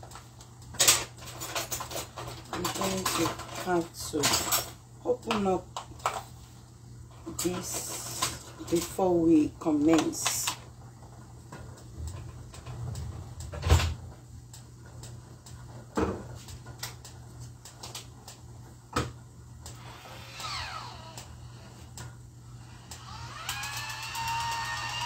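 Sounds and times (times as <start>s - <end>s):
kitchen knocks and clatter: 15.9s - 17.0s.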